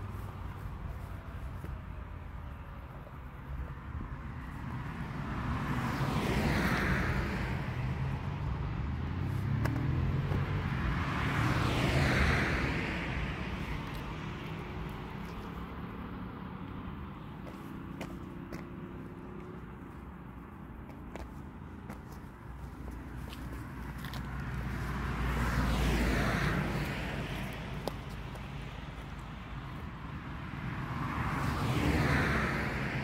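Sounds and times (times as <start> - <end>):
road vehicles passing by: 0.0 - 33.0.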